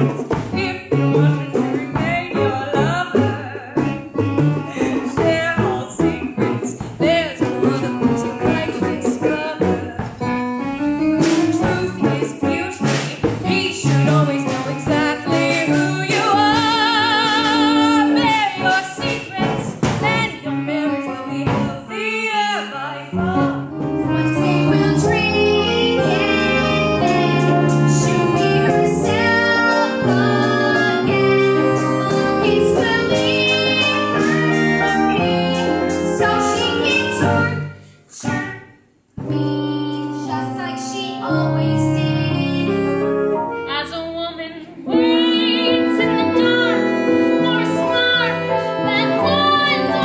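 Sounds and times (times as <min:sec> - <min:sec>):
band accompaniment: 0:00.0 - 0:22.2, 0:23.1 - 0:38.6, 0:39.2 - 0:50.0
woman singing with vibrato: 0:00.5 - 0:10.3, 0:11.5 - 0:43.0, 0:43.7 - 0:50.0
boy singing: 0:24.2 - 0:35.2, 0:43.8 - 0:46.8.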